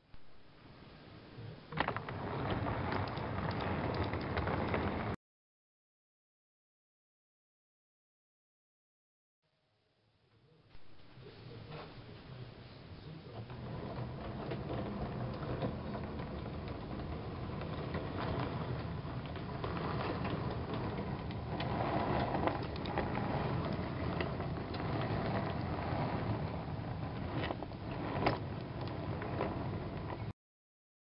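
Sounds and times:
metal wheels clicking over track: 1.8s - 5.2s, 13.4s - 30.3s
model train mechanism whirring: 1.8s - 5.2s, 13.1s - 30.3s
metal coaches rattling: 13.4s - 30.3s.

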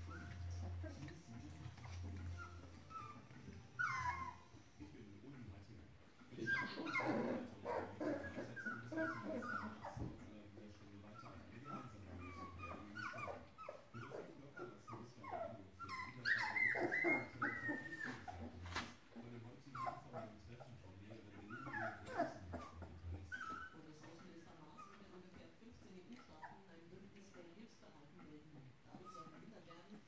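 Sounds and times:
puppies whimpering and yelping: 0.0s - 1.1s, 1.7s - 4.6s, 6.3s - 10.2s, 11.1s - 18.9s, 19.7s - 25.0s.

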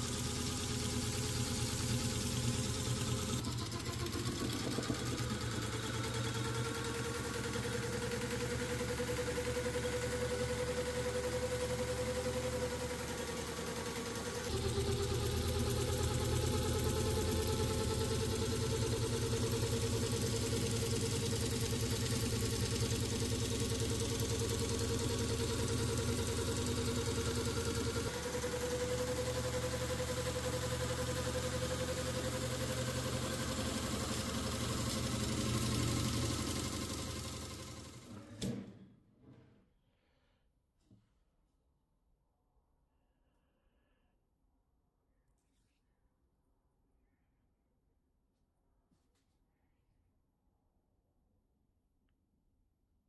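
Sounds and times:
jigsaw motor running: 0.0s - 38.1s.

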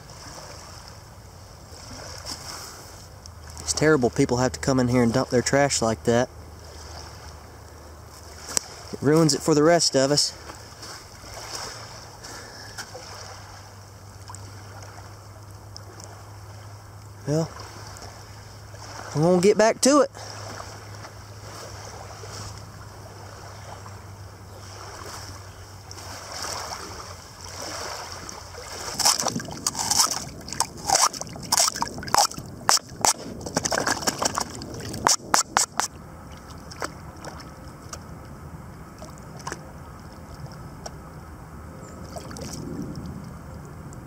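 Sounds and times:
quiet water: 0.0s - 44.0s
splashes and drips: 1.7s - 4.2s, 10.3s - 19.4s, 24.6s - 38.0s, 39.0s - 40.6s, 42.0s - 43.4s.

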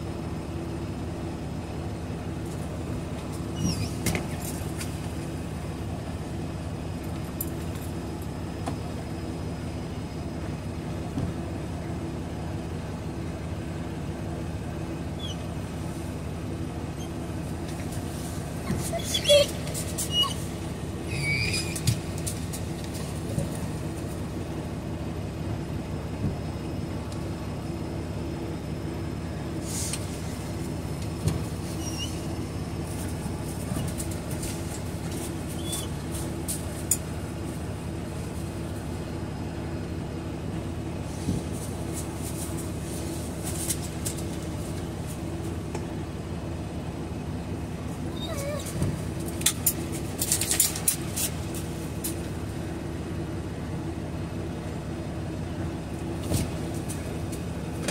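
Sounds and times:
diesel truck engine idling: 0.0s - 57.9s
faint high squeaks: 3.5s - 4.1s, 18.7s - 22.0s, 31.6s - 32.4s, 35.5s - 35.9s
clicks and rustles: 48.6s - 52.2s.

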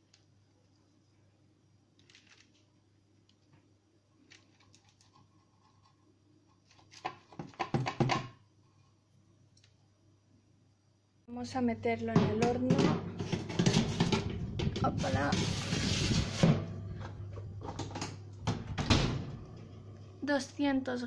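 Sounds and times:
faint clicks and scrapes: 4.2s - 7.3s
metal oven and tray clatter: 12.5s - 16.8s.

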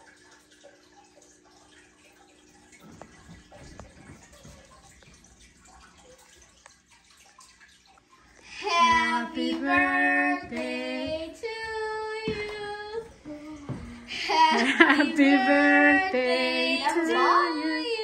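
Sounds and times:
voices singing long notes: 14.2s - 18.0s.

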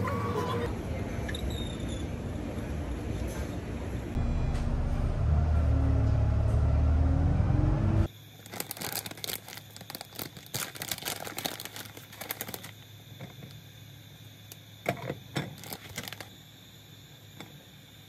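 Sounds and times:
steady low hum: 0.0s - 8.3s
food crackling and popping in pot: 8.4s - 12.8s.

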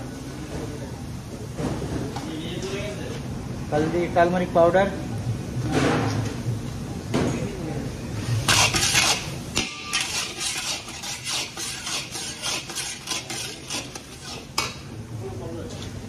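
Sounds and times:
metal spatula scraping iron pan: 8.4s - 14.7s.

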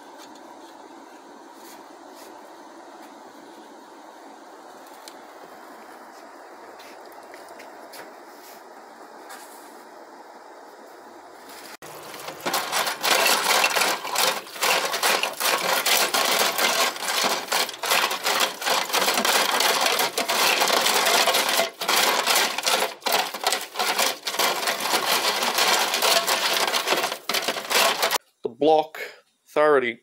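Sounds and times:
brush scrubbing metal tray: 11.8s - 28.2s
steel parts rattling and clinking: 11.9s - 28.2s.

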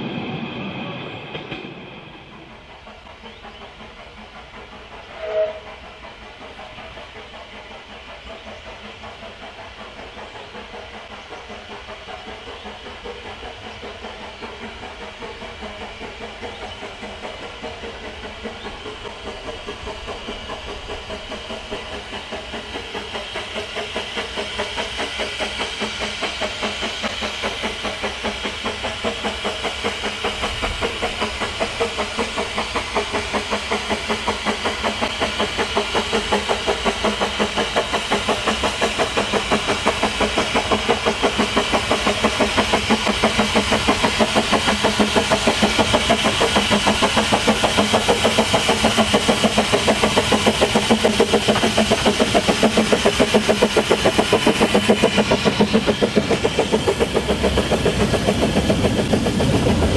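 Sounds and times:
steam locomotive exhaust beats: 0.0s - 59.9s
steam whistle blast: 5.0s - 5.8s.

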